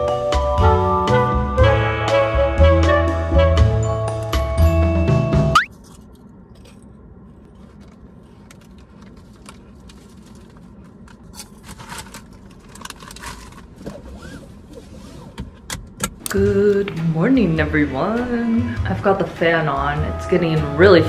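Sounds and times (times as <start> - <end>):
music: 0.0 - 5.6, 16.3 - 21.0.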